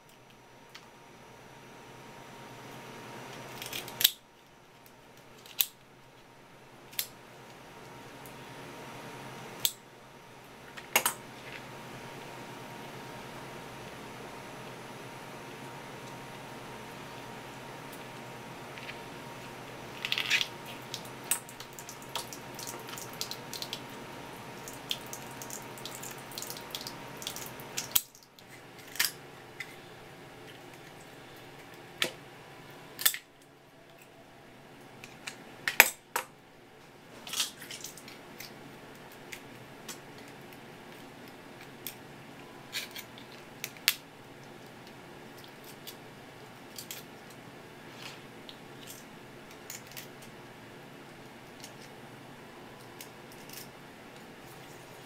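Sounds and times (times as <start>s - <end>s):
shears cracking crab shell: 3.5s - 4.2s, 24.6s - 29.2s.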